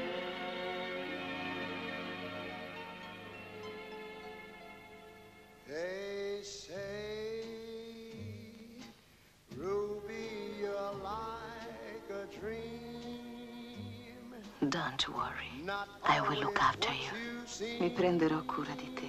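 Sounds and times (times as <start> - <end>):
wordless singing voice: 5.7 - 19.0.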